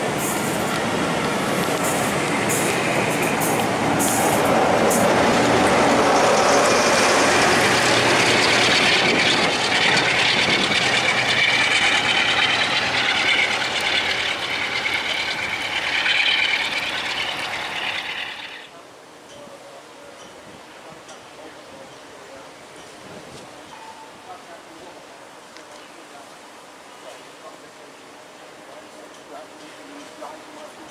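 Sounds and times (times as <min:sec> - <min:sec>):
train wheels rumbling on rail: 0:00.0 - 0:18.7
high ringing whine: 0:08.2 - 0:18.7.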